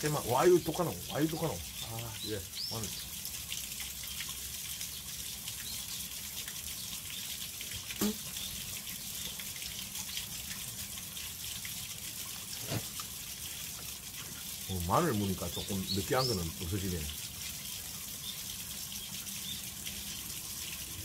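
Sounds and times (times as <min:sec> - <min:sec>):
running water rushing: 0:00.0 - 0:21.0.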